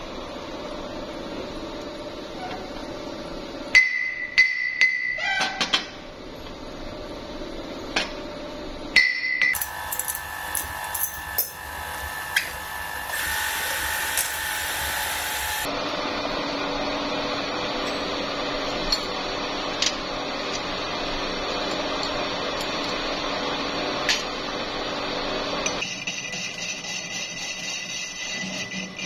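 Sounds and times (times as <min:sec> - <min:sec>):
power tool running: 0:09.6 - 0:15.8.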